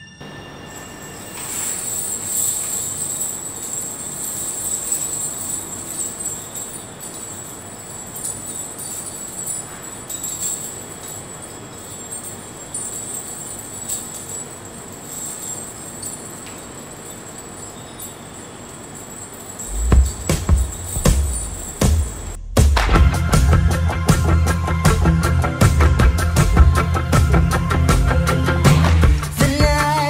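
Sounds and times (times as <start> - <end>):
metal discs jingling: 0.0 - 22.4.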